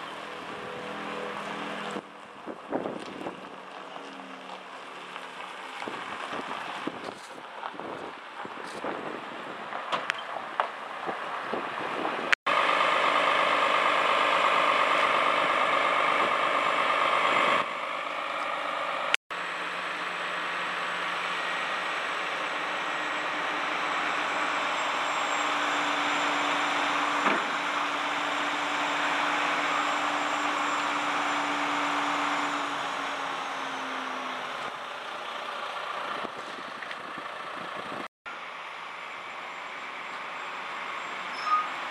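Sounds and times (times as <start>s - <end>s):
diesel engine running: 0.0s - 9.8s, 10.4s - 41.9s
hydraulic crane hum: 11.6s - 41.9s.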